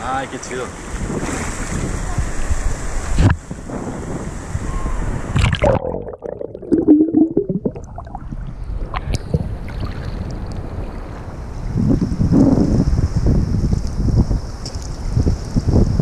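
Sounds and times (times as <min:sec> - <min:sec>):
muffled underwater gurgling: 0:05.4 - 0:09.8.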